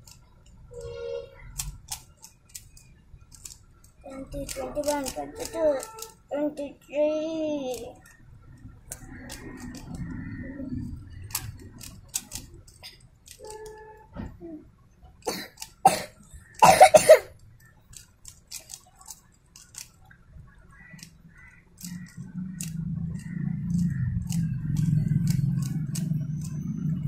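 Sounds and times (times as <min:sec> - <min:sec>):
plastic cube layers clicking: 0:00.0 - 0:00.7, 0:01.4 - 0:06.2, 0:07.0 - 0:10.2, 0:10.8 - 0:13.8, 0:15.1 - 0:16.6, 0:17.4 - 0:27.0
person coughing: 0:15.3 - 0:17.3.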